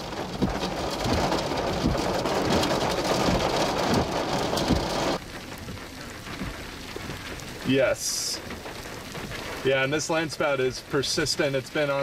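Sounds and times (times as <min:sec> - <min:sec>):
rain pattering: 0:00.0 - 0:12.0
faint steady hiss: 0:07.0 - 0:12.0.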